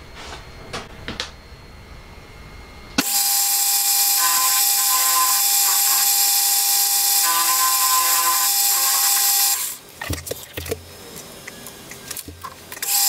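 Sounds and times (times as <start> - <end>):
metal lathe whining: 3.0 - 9.8.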